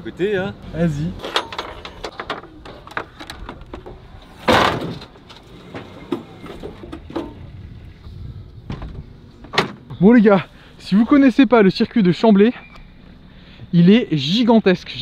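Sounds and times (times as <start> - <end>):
knocks and clanks on metal trailer: 1.2 - 7.5.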